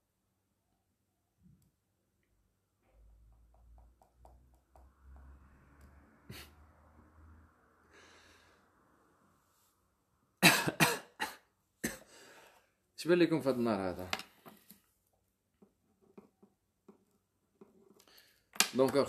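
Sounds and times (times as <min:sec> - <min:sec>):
short sniff: 0:06.3 - 0:06.6.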